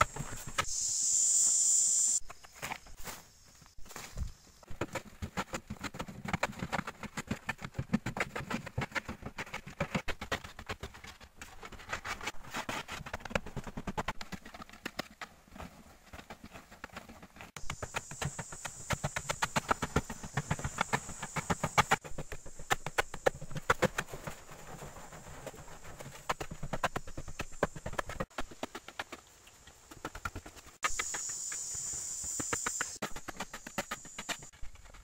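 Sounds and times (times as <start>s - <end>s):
high-pitched whine: 0.0s - 2.2s.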